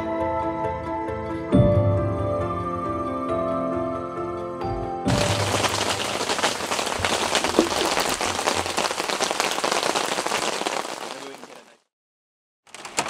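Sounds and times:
heavy rain pattering: 0:05.1 - 0:11.8.

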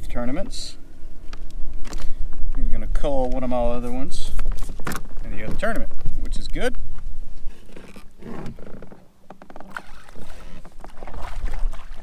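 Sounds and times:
knocks and rattles on plastic kayak: 0:04.4 - 0:05.9, 0:07.7 - 0:12.0.

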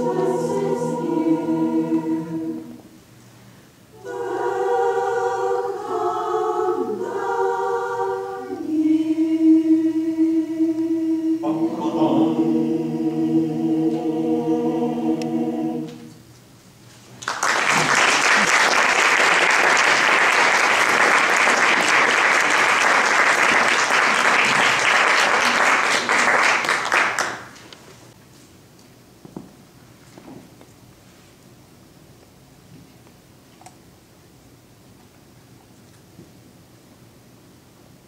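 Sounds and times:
mixed choir singing: 0:00.0 - 0:03.0, 0:03.9 - 0:16.2
audience applause: 0:17.2 - 0:27.6.

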